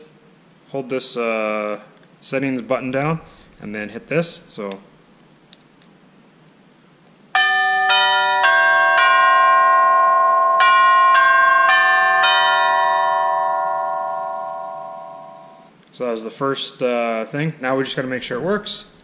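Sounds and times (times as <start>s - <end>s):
electronic doorbell chime tune: 7.4s - 15.7s.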